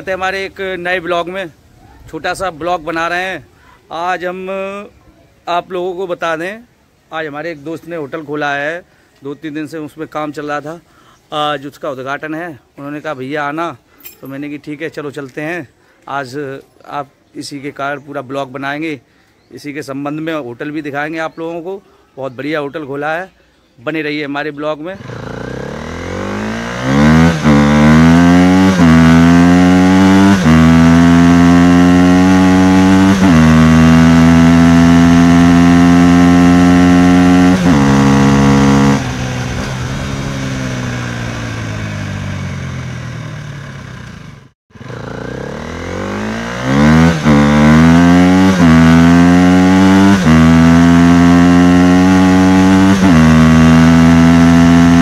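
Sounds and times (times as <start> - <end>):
motorcycle engine accelerating: 25.0 - 55.0.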